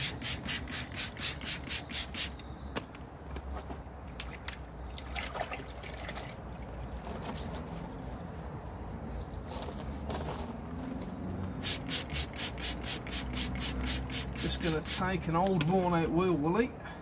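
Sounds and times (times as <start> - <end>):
fast sharp strokes: 0.0 - 2.4, 11.6 - 14.7.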